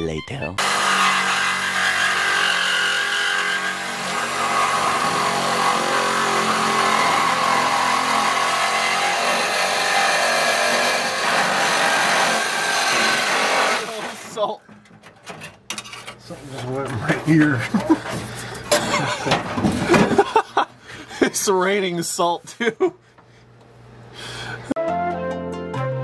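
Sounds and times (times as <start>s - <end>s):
reciprocating saw cutting metal pipe: 0.6s - 14.5s.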